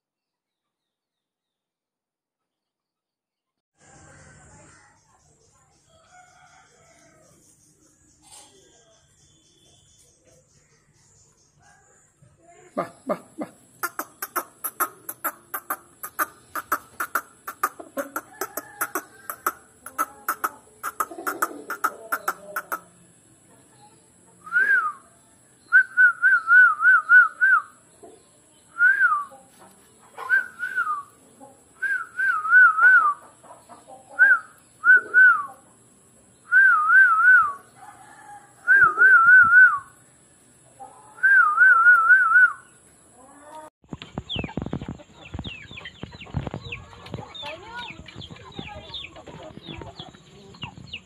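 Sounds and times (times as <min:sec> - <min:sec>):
crackling clicks and rustling: 0:43.5 - 0:51.0.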